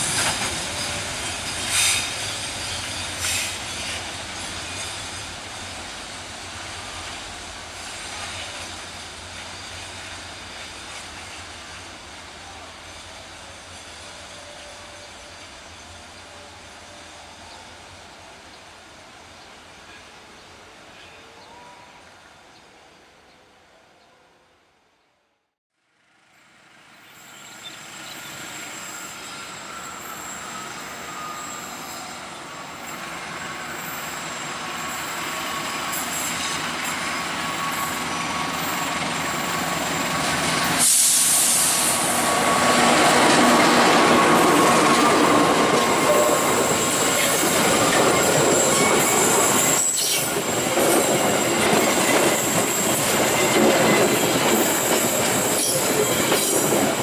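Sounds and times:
diesel locomotive passing: 0.0 - 21.0, 26.0 - 57.0
train coaches rolling by: 0.0 - 21.6, 26.0 - 57.0
wheels squealing: 27.0 - 57.0.

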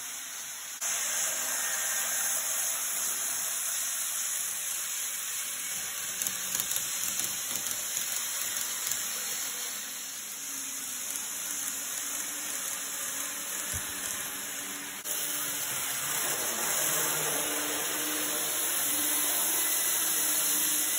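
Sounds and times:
model train motors whirring: 0.0 - 20.9.

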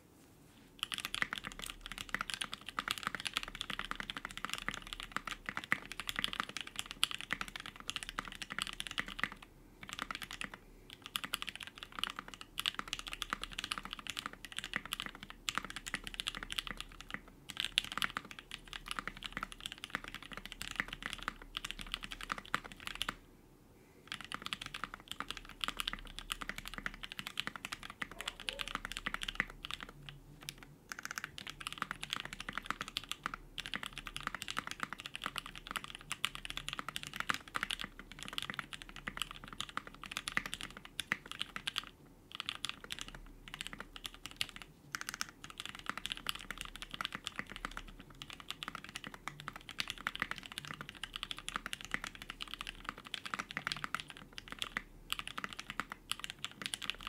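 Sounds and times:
fast typing on mechanical keyboard: 0.8 - 23.2, 24.1 - 57.0.

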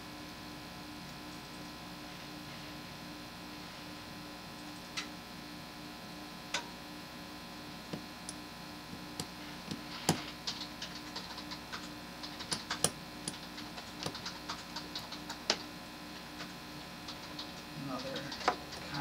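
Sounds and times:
faint steady hum: 0.0 - 19.0
small metal clicks and ticks: 17.1 - 19.0.

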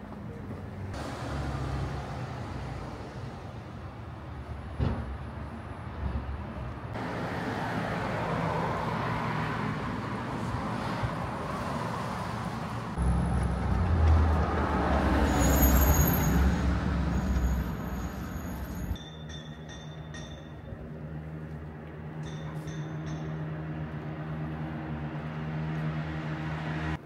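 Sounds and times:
road traffic passing: 0.0 - 27.0
heavy vehicle engine rumble: 12.4 - 19.0.

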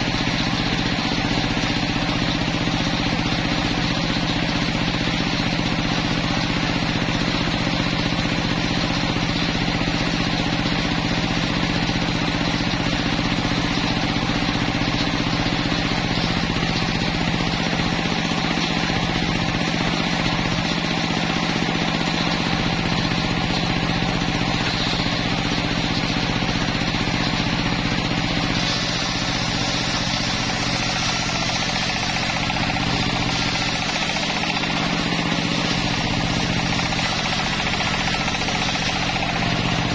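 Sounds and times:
sawmill motor drone: 0.0 - 39.9
saw blade ripping through log: 27.0 - 39.9.

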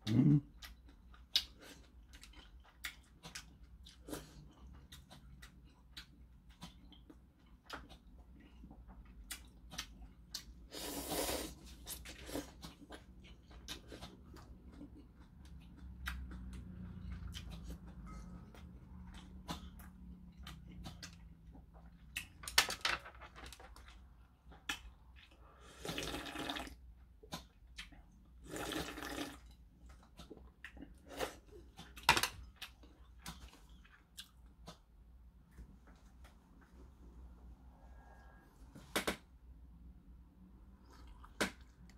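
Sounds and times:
chewing: 0.4 - 10.7, 11.6 - 22.4, 29.8 - 34.9
wet slurps of noodles: 10.7 - 12.6.

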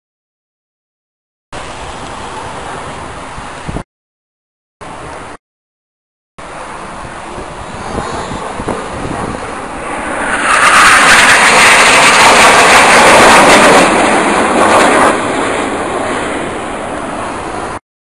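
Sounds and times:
jet fighters flying overhead: 6.4 - 17.8.

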